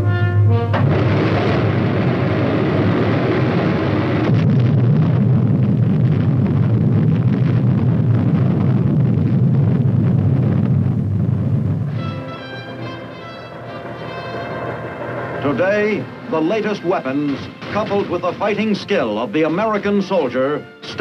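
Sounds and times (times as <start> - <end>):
music: 0.0 - 1.2, 11.9 - 21.0
explosion: 0.7 - 19.8
rocket launch roar: 0.7 - 19.8.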